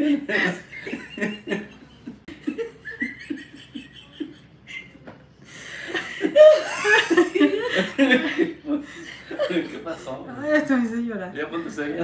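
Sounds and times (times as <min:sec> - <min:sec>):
woman laughing: 0:00.0 - 0:05.1, 0:05.9 - 0:09.5.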